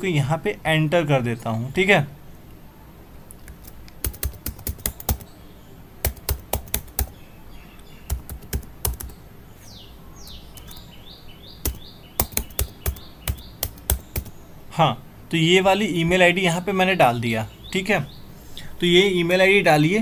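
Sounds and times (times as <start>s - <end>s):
keyboard typing: 3.3s - 5.3s, 6.0s - 7.2s, 8.1s - 9.2s, 10.5s - 10.8s, 11.6s - 14.4s.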